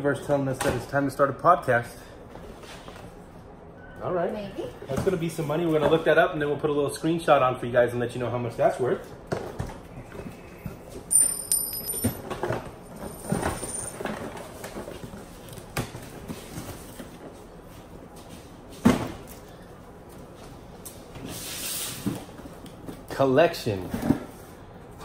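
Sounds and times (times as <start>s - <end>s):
cardboard scraping hiss: 21.2s - 22.4s.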